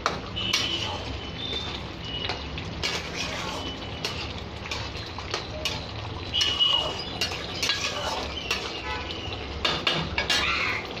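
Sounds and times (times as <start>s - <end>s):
spatula scraping metal pan: 0.4s - 10.6s.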